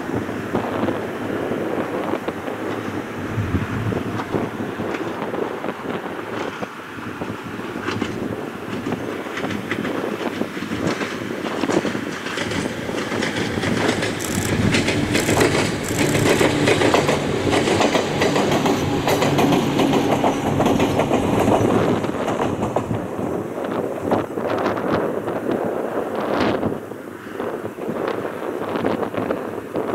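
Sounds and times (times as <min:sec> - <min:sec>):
wind buffeting microphone: 0:00.0 - 0:29.9
train wheels clattering: 0:07.8 - 0:23.2
train motor hum: 0:12.8 - 0:23.2.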